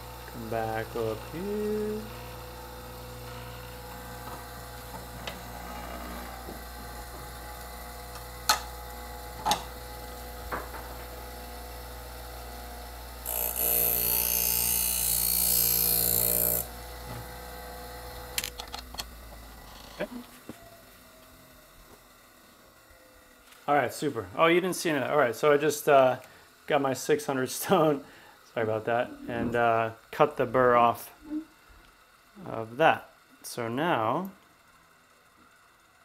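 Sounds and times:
sharpening machine motor humming: 0:00.0 - 0:23.6.

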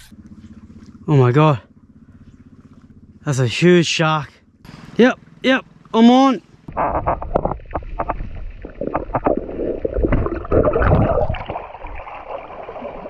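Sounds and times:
underwater gurgling and bubbling: 0:06.7 - 0:13.0
water splashing: 0:06.7 - 0:13.0.

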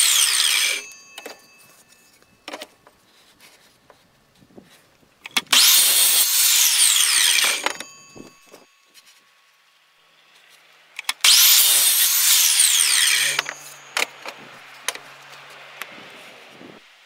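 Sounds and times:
miter saw whining cutting wood: 0:00.0 - 0:01.5, 0:05.4 - 0:08.6, 0:11.2 - 0:14.2.

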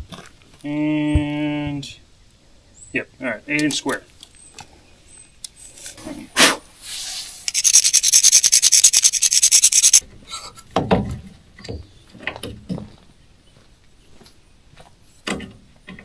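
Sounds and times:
fast rasping scrape: 0:06.9 - 0:10.0.

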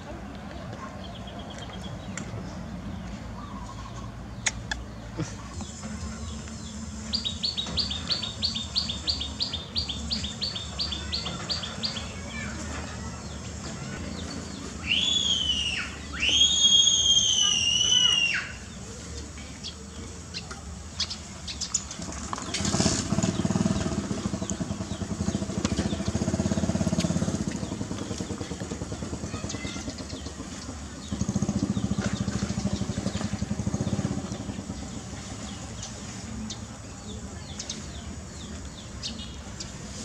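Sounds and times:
motorcycle engine passing by: 0:21.8 - 0:38.5.

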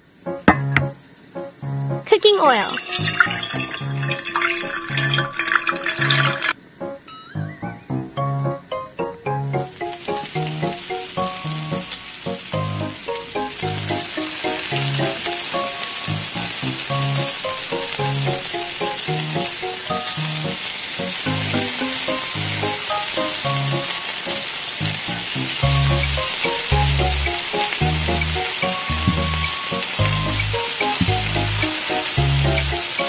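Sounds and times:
hot oil sizzling: 0:02.1 - 0:33.0
background music with plucked melody: 0:06.0 - 0:16.3, 0:16.9 - 0:33.0
bass line: 0:25.6 - 0:31.6, 0:32.2 - 0:32.7.

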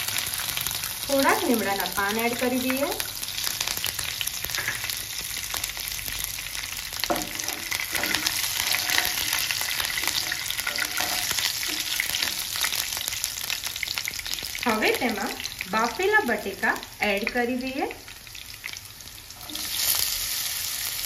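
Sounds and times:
food sizzling in hot oil: 0:00.0 - 0:21.0
wooden spatula stirring: 0:07.1 - 0:12.6.

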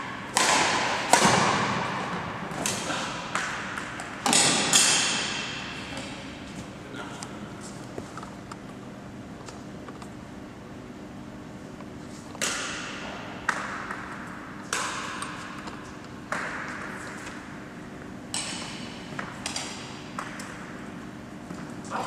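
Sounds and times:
rackets hitting shuttlecock: 0:00.0 - 0:06.4, 0:12.4 - 0:21.8
steady low hum: 0:00.0 - 0:22.0.

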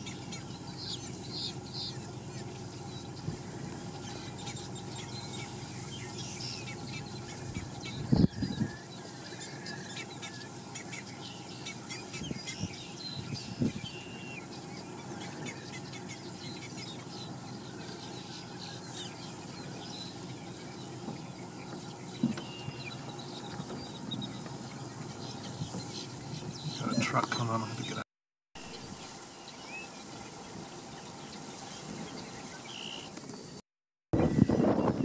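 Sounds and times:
birds chirping and whistling: 0:00.0 - 0:28.0, 0:28.6 - 0:33.6, 0:34.2 - 0:35.0.

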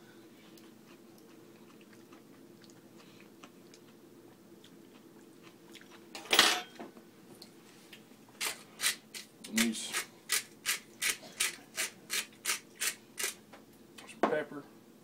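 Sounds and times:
faint steady hum: 0:00.0 - 0:15.0
person chewing: 0:00.5 - 0:06.0
metal fork clattering on countertop: 0:06.2 - 0:06.8.

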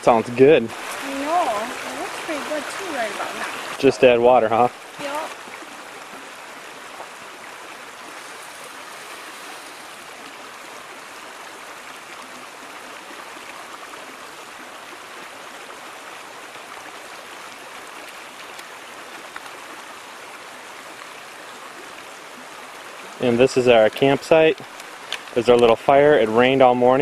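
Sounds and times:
stream water rushing: 0:00.0 - 0:27.0.

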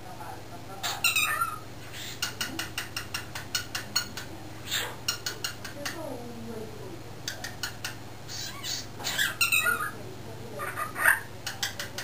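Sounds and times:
cockatiel chattering: 0:00.8 - 0:06.0, 0:07.3 - 0:10.0, 0:10.6 - 0:12.0.

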